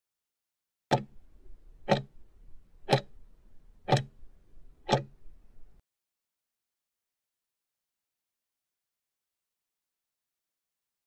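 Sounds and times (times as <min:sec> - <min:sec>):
clock ticking: 0:00.9 - 0:01.2, 0:01.8 - 0:02.2, 0:02.9 - 0:03.2, 0:03.8 - 0:04.2, 0:04.8 - 0:05.2.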